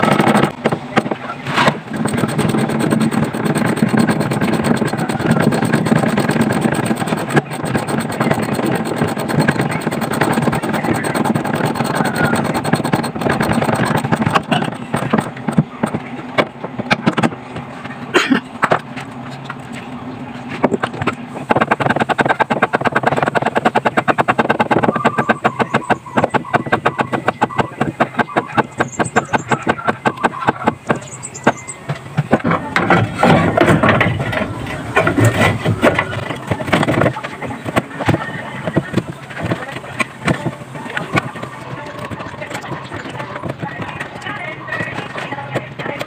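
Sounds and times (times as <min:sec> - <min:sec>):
hand ratchet clicking: 0:01.9 - 0:15.6.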